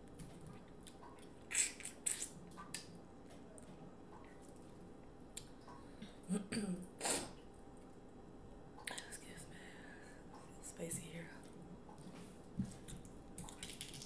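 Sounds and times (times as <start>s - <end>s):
crab shell cracking: 13.4s - 14.0s.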